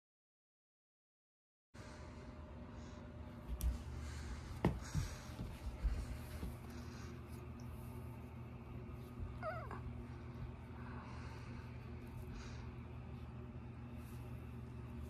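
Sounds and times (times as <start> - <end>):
soft thumps on rug: 4.6 - 6.6.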